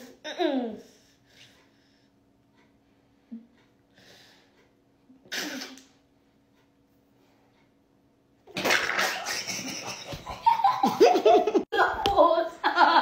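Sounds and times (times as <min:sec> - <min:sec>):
loud laughter: 0:08.7 - 0:11.7.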